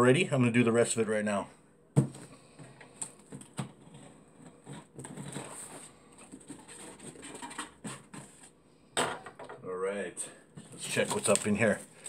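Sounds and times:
scratching and rustling of tape: 2.2s - 8.6s, 10.6s - 12.0s.

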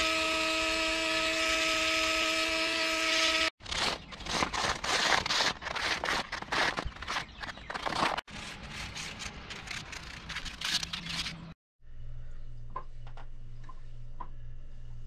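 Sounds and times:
hand tool scraping wood: 0.1s - 11.5s
low steady hum: 11.8s - 15.0s.

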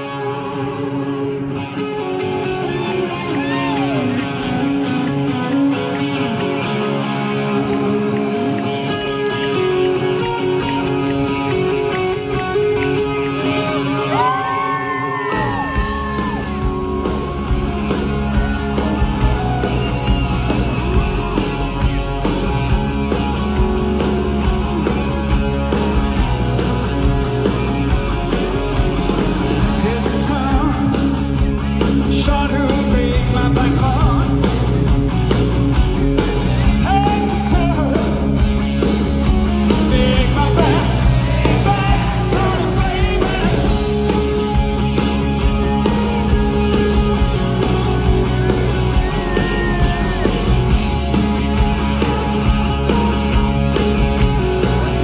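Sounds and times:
bass and drums: 0.0s - 55.0s
electric guitar riff: 0.0s - 55.0s
yelled and sung vocals: 13.9s - 20.9s, 29.2s - 34.7s, 36.4s - 38.6s, 39.4s - 55.0s.

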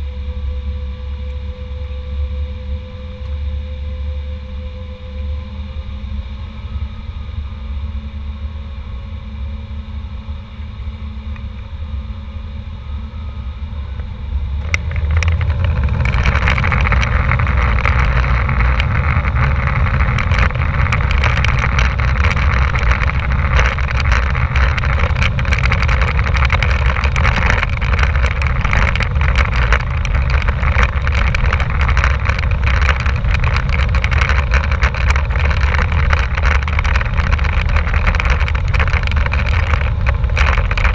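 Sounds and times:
airframe rattles and knocks: 14.6s - 40.9s.

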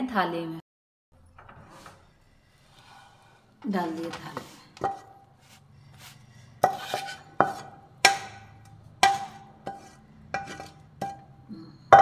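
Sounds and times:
spatula knocking on steel cookware: 6.6s - 11.3s.

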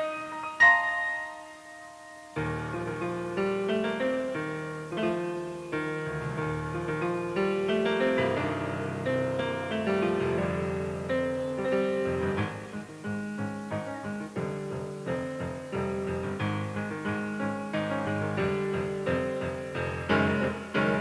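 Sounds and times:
piano music: 0.0s - 21.0s.

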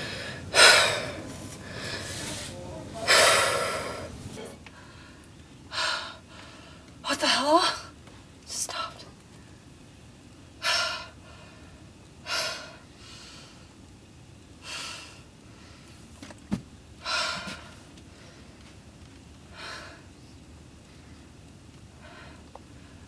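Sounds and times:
woman breathing in heavy gasps: 0.0s - 2.5s.

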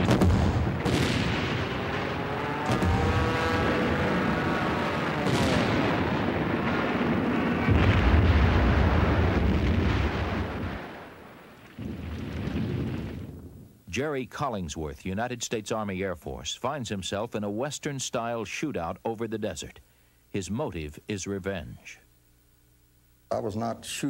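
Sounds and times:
anti-aircraft gunfire: 0.0s - 13.3s
explosion rumble: 0.0s - 13.6s
aircraft engine droning past: 1.7s - 5.4s.

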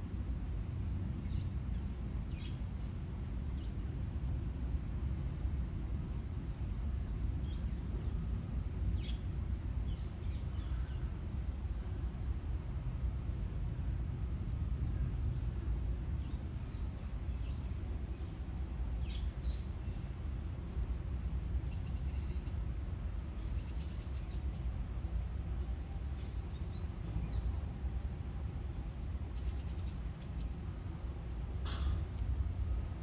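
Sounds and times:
low outdoor rumble: 0.0s - 33.0s
small birds chirping: 23.3s - 28.0s, 29.2s - 32.6s.

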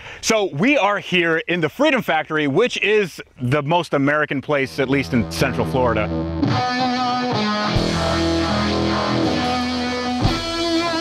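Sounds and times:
guitar background music: 4.7s - 11.0s
heavy low hit: 7.7s - 10.5s.

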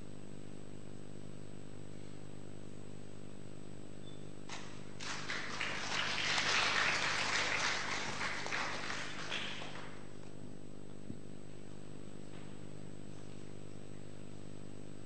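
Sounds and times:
audience applauding: 4.5s - 10.1s.

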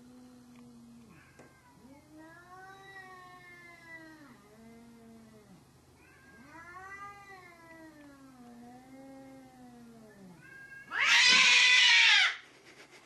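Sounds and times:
cat yowling: 5.4s - 12.4s
cat screeching: 10.3s - 12.4s.

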